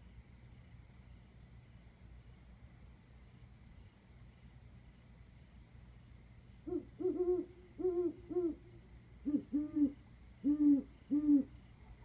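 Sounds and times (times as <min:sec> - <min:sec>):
owls hooting: 0:06.6 - 0:11.6.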